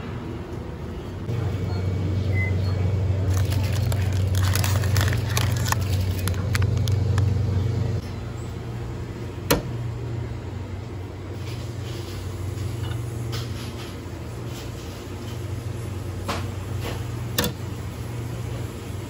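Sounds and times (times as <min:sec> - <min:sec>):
refrigerator hum: 0:00.0 - 0:19.0
plastic wrapper crinkling: 0:03.2 - 0:07.4.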